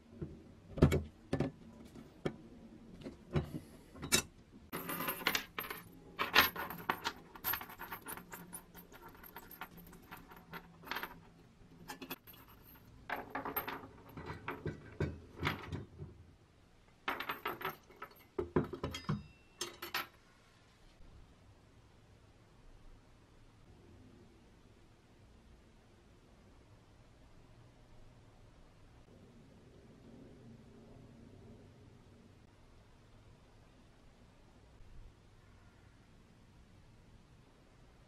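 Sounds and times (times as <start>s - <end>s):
metal chain clinking: 4.0s - 16.0s, 17.1s - 20.2s.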